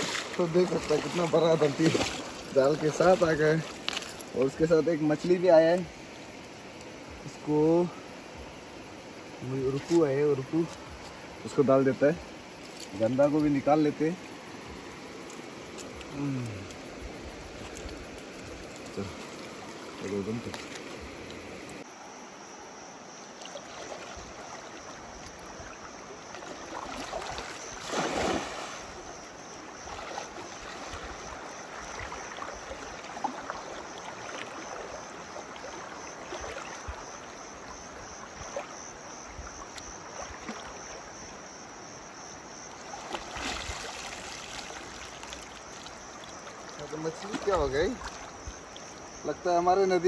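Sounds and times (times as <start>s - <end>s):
cast net splashing into water: 0.0s - 4.2s, 23.4s - 24.8s, 26.3s - 37.1s, 40.1s - 41.0s, 42.8s - 48.9s
wet net sloshing: 0.0s - 4.3s, 26.3s - 29.0s, 29.7s - 37.0s, 42.8s - 48.4s
river water flowing: 0.0s - 50.0s.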